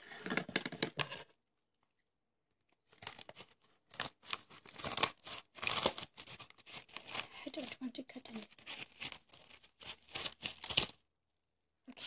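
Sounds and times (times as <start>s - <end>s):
package wrapping tearing and crinkling: 2.8s - 11.0s.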